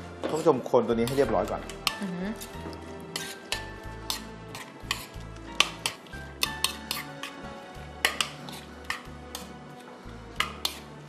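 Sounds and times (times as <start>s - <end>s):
background music: 0.0s - 11.0s.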